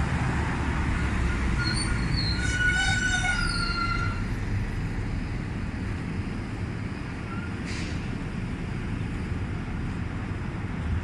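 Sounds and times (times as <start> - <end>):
road traffic: 0.0 - 11.0
high squeal: 1.0 - 4.3.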